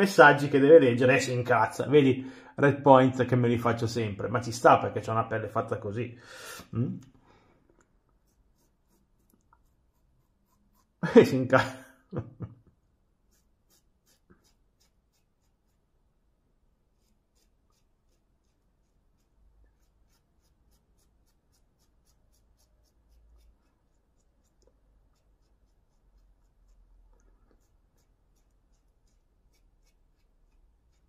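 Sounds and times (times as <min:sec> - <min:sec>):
razor scraping stubble: 0:08.1 - 0:11.4, 0:13.2 - 0:15.8, 0:16.9 - 0:31.0.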